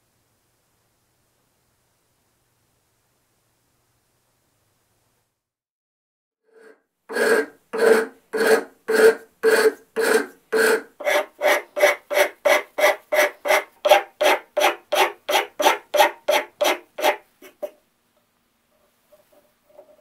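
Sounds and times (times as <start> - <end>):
hand file rasping on wood: 6.6 - 17.8.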